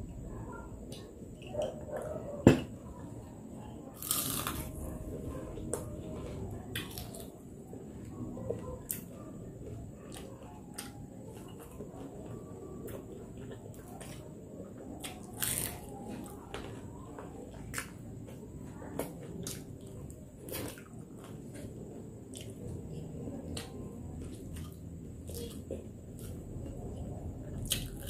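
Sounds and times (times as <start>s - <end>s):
crispy food crunching: 4.0s - 4.9s, 6.6s - 7.4s, 15.0s - 16.8s, 19.0s - 28.0s
person chewing wetly: 27.6s - 28.0s.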